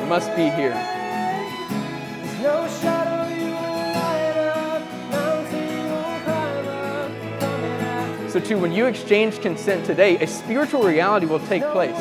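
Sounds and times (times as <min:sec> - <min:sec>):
man singing worship song: 0:00.0 - 0:01.6, 0:02.4 - 0:12.0
acoustic guitar: 0:00.0 - 0:12.0.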